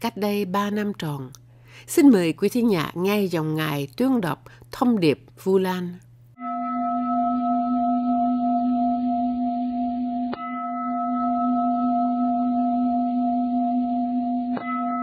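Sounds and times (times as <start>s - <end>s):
singing bowl ringing: 6.4s - 15.0s.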